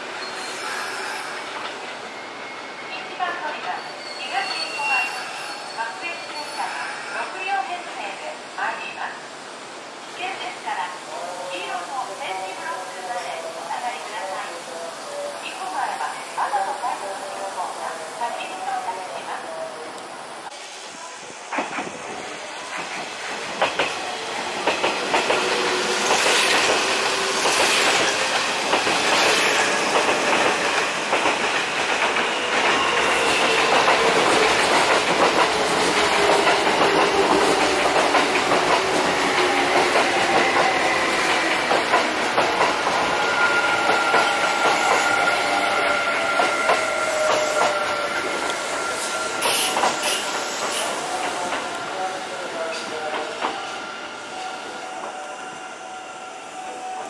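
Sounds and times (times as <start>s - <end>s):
train wheels clicking over rail joints: 21.5s - 43.1s, 46.4s - 51.8s.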